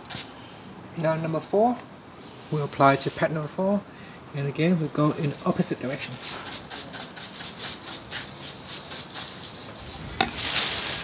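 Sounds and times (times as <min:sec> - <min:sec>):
sanding pad rubbing plastic: 0:05.2 - 0:11.0.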